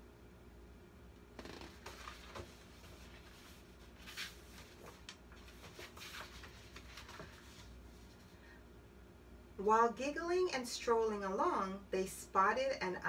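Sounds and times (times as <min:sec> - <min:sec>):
paper pages rustling: 0:01.7 - 0:08.4.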